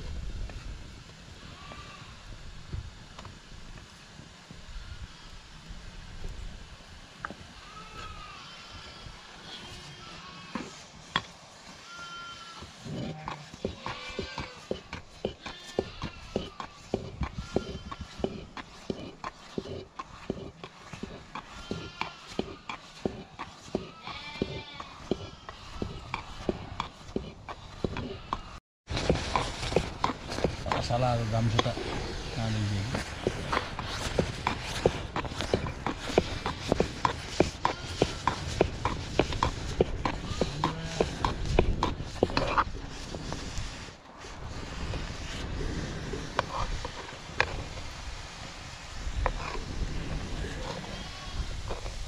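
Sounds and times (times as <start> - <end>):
livestock bleating: 1.4 - 2.2, 7.6 - 10.6, 11.8 - 14.6, 23.8 - 26.1
stick stirring porridge in pot: 8.8 - 49.8.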